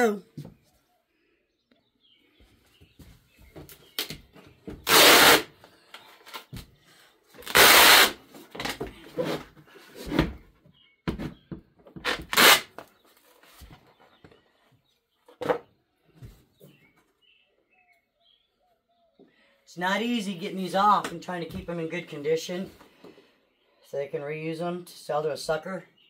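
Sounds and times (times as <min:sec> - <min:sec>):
plastic scraping rasps: 0:11.9 - 0:12.9.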